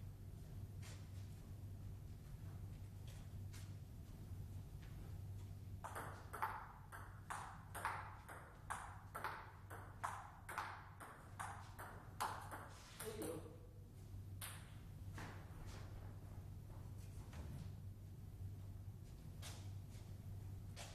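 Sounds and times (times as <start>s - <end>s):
steady low hum: 0.0s - 20.9s
table tennis ball knocks: 5.8s - 13.5s.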